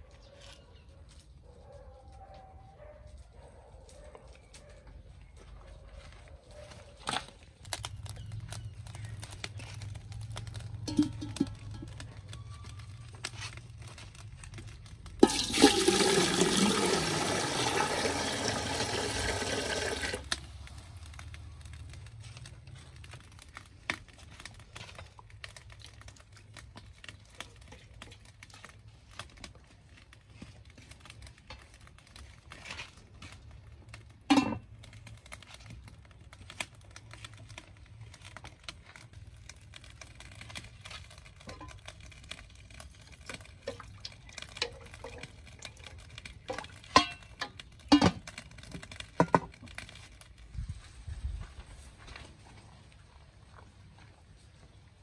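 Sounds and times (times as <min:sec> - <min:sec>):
water pouring: 0:14.7 - 0:21.4, 0:39.6 - 0:50.5.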